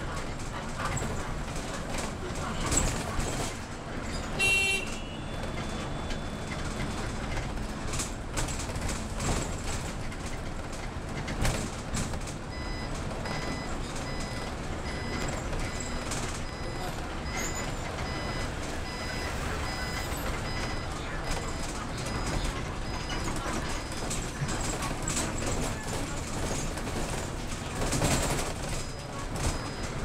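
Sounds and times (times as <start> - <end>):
bus engine and road noise: 0.0 - 30.0
electronic warning beep: 12.5 - 24.2, 28.8 - 30.0.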